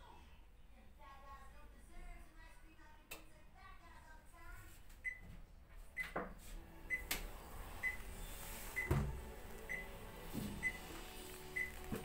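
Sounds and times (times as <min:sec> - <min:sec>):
washing machine beeping: 0:05.0 - 0:05.3, 0:06.0 - 0:12.0.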